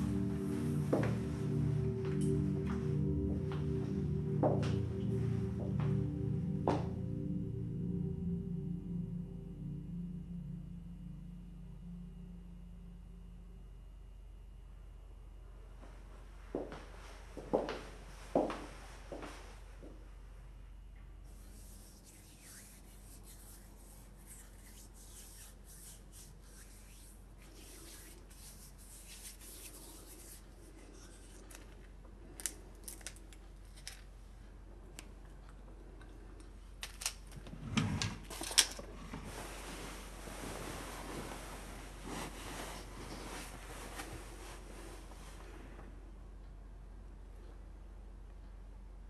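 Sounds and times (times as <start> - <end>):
bedclothes rustling: 0.0 - 7.0, 38.2 - 45.8.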